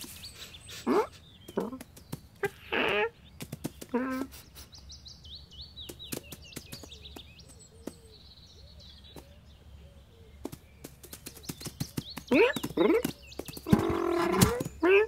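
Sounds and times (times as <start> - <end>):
small birds chirping: 0.0 - 15.0
light taps and clicks: 5.9 - 8.1.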